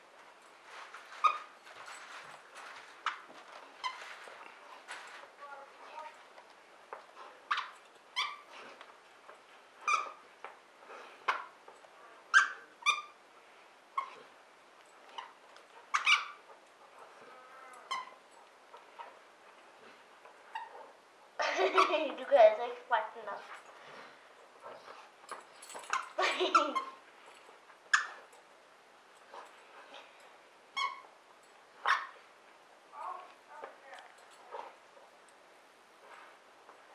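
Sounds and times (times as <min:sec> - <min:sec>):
squeaky toy squeaking: 0:07.5 - 0:08.5, 0:09.8 - 0:10.2, 0:12.3 - 0:13.2, 0:15.2 - 0:16.4, 0:17.8 - 0:18.2, 0:21.7 - 0:22.0, 0:25.9 - 0:27.0, 0:27.9 - 0:28.2.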